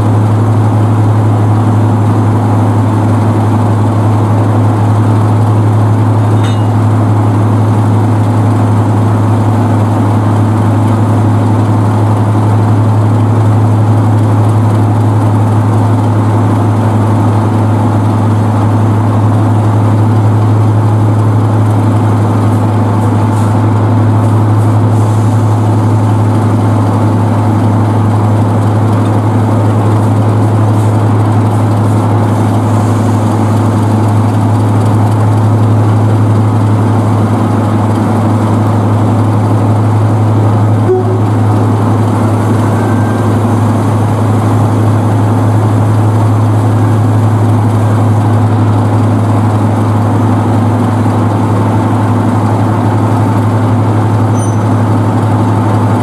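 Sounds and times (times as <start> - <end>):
diesel locomotive engine idling: 0.0 - 56.0.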